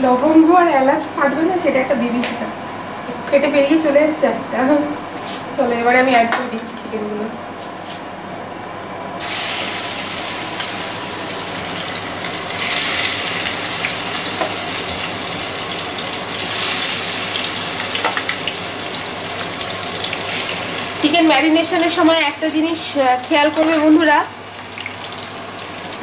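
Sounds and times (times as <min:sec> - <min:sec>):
chicken sizzling in hot oil: 0:09.2 - 0:26.0.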